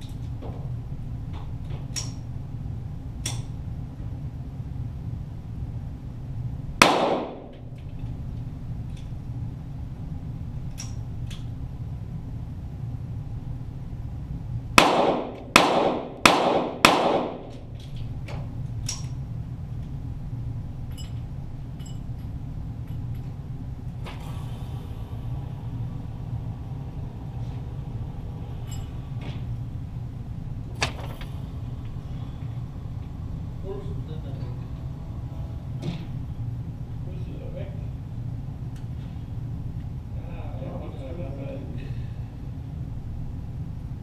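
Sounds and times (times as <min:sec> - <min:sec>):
steady low hum: 0:00.0 - 0:44.0
pistol shots echoing: 0:06.8 - 0:07.5, 0:14.8 - 0:17.6.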